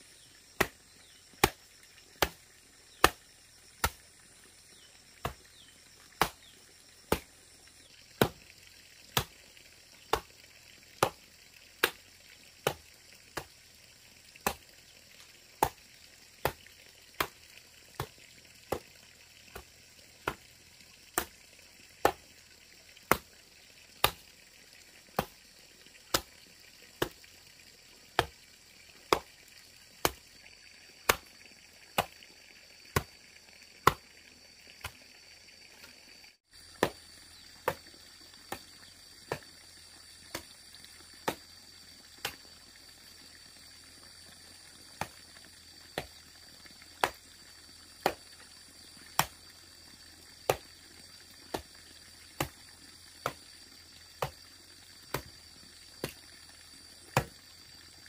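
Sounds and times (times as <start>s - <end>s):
hand tool chopping: 0.6s - 0.8s, 1.4s - 1.6s, 2.2s - 2.4s, 3.0s - 3.2s, 3.8s - 4.0s, 6.2s - 6.5s, 7.1s - 7.3s, 8.2s - 8.4s, 9.1s - 9.3s, 11.0s - 11.2s, 11.8s - 12.0s, 12.6s - 12.8s, 23.1s - 23.3s, 24.0s - 24.2s, 25.2s - 25.4s, 31.1s - 31.3s, 36.8s - 37.0s, 42.2s - 42.4s, 49.2s - 49.4s, 54.2s - 54.4s, 55.1s - 55.3s.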